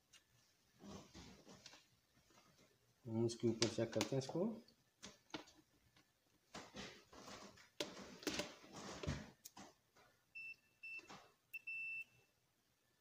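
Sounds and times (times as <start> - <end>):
multimeter continuity beep: 10.4 - 12.2.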